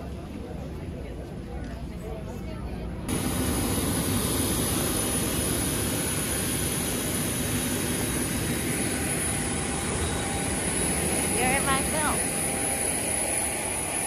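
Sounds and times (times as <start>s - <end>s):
jet engine rushing whine: 3.0s - 14.0s.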